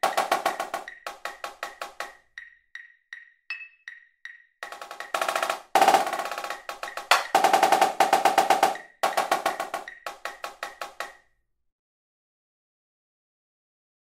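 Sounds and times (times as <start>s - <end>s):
marching snare drum: 0.0s - 2.2s, 4.6s - 11.2s
metronome click: 2.0s - 5.2s.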